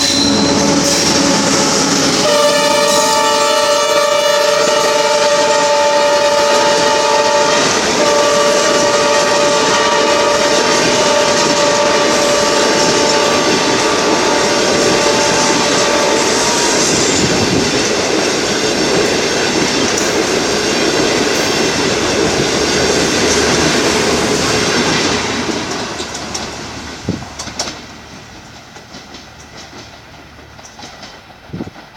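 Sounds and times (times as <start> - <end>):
train wheels rumbling on rails: 0.0 - 31.9
wheel clacks over rail joints: 24.6 - 31.9.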